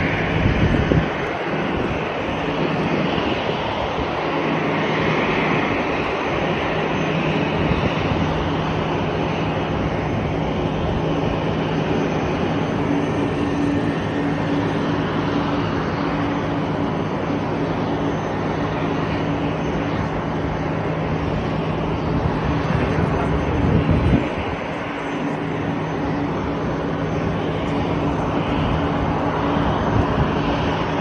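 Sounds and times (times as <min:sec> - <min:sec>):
aircraft engine noise: 0:00.0 - 0:31.0.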